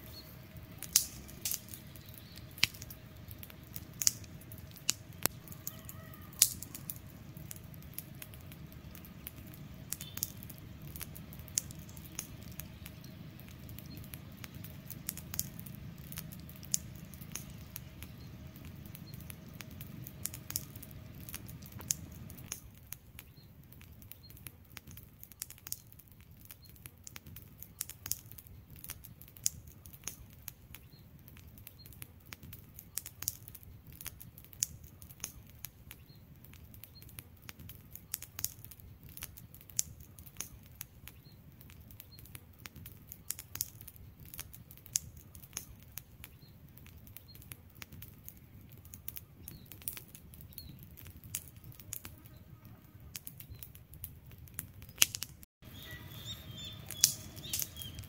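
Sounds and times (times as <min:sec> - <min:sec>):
soft low rumble: 0:00.0 - 0:24.1
wood fire crackling: 0:00.0 - 0:58.0.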